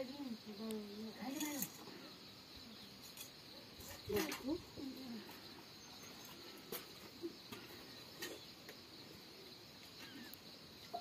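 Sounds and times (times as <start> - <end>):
high insect drone: 0.0 - 11.0
small faint chirps: 9.8 - 11.0.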